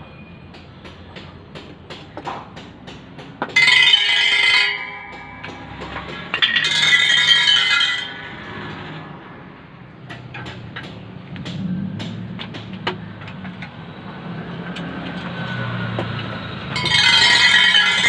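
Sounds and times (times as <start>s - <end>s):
metallic ringing clatter of spokes: 3.6s - 9.0s, 16.7s - 18.0s.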